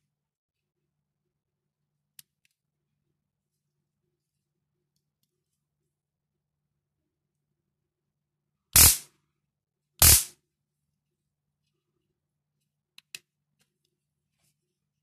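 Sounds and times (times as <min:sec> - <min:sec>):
stun gun arc bursts: 0:08.8 - 0:09.0, 0:10.0 - 0:10.3.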